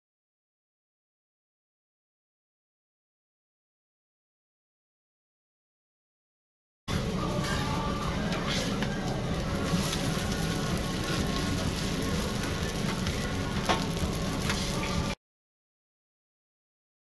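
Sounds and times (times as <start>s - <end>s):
noodles sizzling on a griddle: 7.2s - 15.2s.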